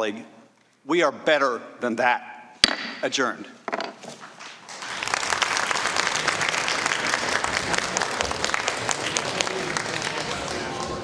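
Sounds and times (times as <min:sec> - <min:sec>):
audience applauding: 0:04.3 - 0:11.0.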